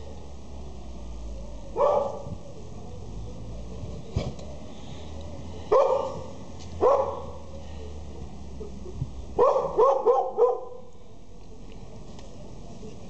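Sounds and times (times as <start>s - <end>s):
puppy barking: 1.8s - 2.3s, 5.7s - 7.4s, 9.4s - 10.8s.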